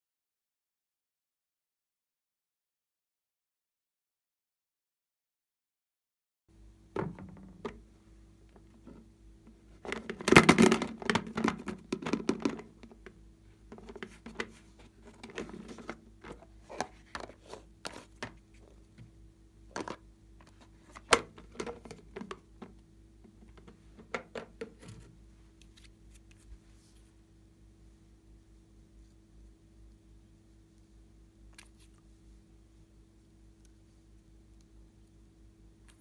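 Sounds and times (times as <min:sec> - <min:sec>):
faint steady hum: 0:06.5 - 0:36.0
hands handling hard plastic: 0:08.5 - 0:19.1, 0:19.7 - 0:27.1.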